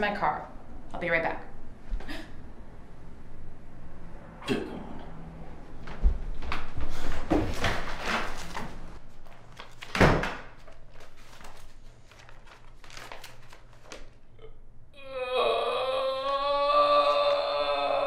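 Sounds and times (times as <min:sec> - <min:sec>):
paper pages rustling: 0:07.5 - 0:14.2.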